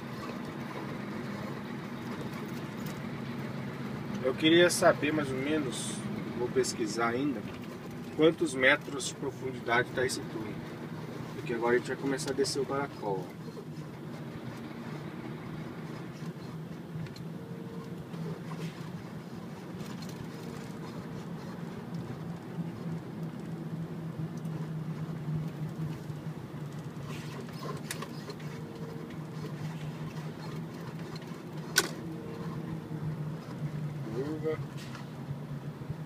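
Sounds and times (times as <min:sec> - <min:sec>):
car engine and tyre hum: 0:00.0 - 0:36.0.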